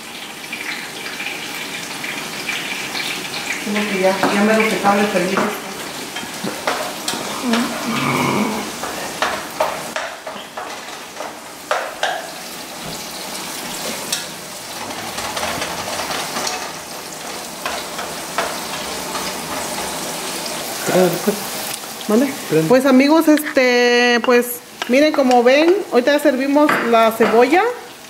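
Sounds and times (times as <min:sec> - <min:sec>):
celery sizzling in oil: 0:00.0 - 0:28.0
wooden spatula scraping pan: 0:06.2 - 0:20.3.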